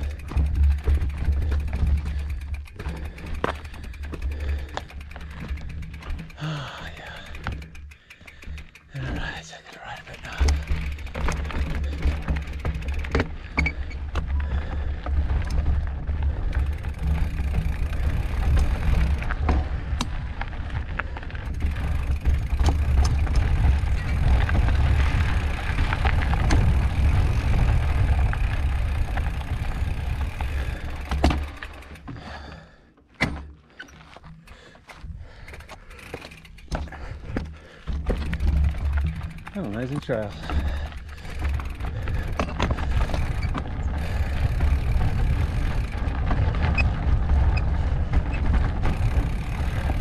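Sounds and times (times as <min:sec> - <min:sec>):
bike clicks and rattles over rocks: 0:00.0 - 0:50.0
wind rumble on microphone: 0:14.2 - 0:30.8.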